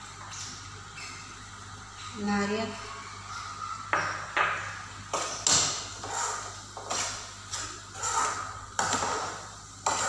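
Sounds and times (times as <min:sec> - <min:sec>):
metal spoon scraping a pan: 0:05.2 - 0:10.0.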